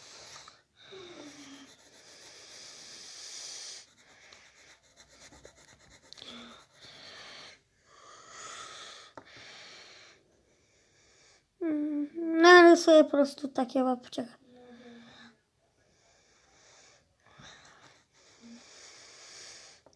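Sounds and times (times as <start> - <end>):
faint wheezy breathing: 0.0 - 5.0, 6.1 - 11.6, 14.6 - 19.9
pen scratching on paper: 1.2 - 7.3.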